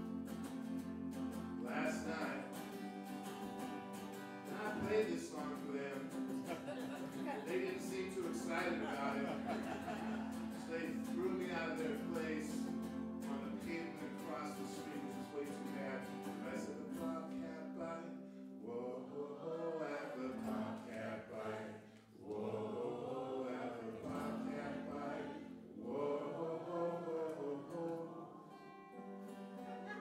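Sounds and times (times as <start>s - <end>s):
guitar accompaniment: 0.0s - 18.7s, 24.0s - 25.8s, 27.1s - 30.0s
man singing: 1.6s - 2.7s, 4.4s - 21.5s, 23.4s - 28.5s.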